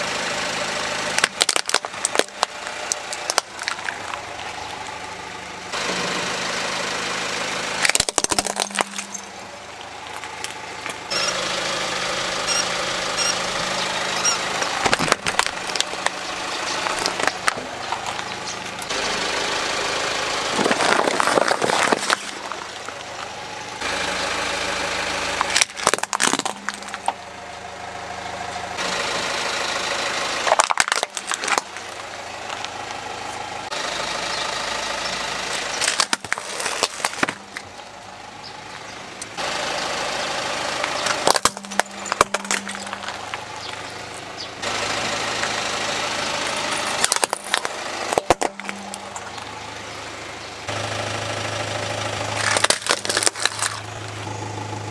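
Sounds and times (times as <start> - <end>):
car engine idling: 0.0 - 54.9
plastic toys cracking under tyre: 1.1 - 4.6, 7.8 - 9.3, 14.3 - 18.4, 20.5 - 23.3, 25.4 - 27.2, 30.4 - 32.7, 35.5 - 37.7, 40.9 - 43.8, 46.6 - 49.5, 52.3 - 54.2.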